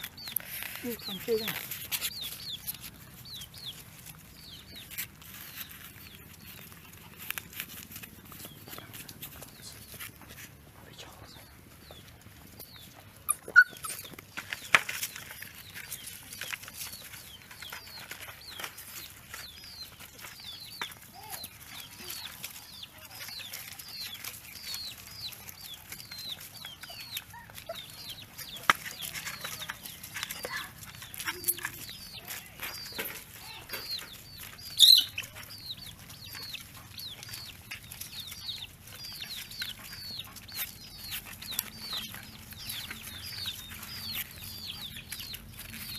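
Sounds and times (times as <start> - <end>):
chicks peeping: 0.0 - 45.9
hen clucking: 11.4 - 14.2.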